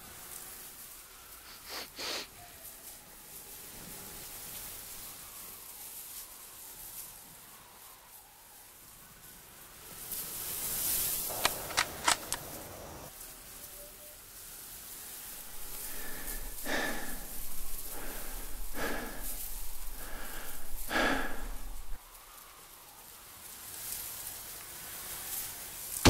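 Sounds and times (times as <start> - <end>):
dull heavy bangs: 15.4 - 22.0.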